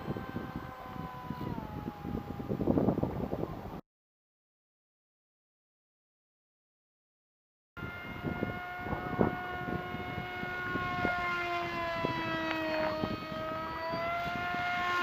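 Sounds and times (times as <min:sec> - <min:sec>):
model plane motor whine: 0:00.0 - 0:03.5, 0:07.8 - 0:15.0.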